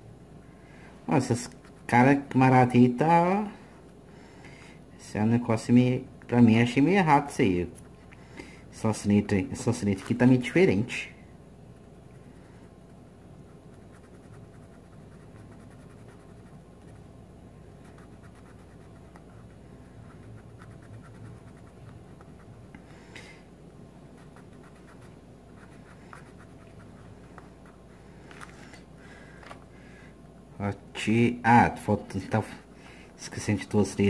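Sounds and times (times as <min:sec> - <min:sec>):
pencil scratching on paper: 0:13.5 - 0:17.1, 0:17.8 - 0:22.6, 0:24.2 - 0:27.8.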